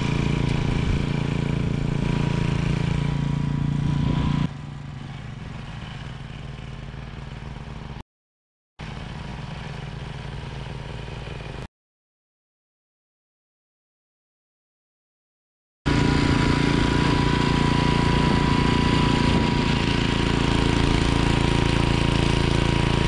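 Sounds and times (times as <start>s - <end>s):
tiller engine running: 0.0s - 8.0s, 8.8s - 11.7s, 15.9s - 23.0s.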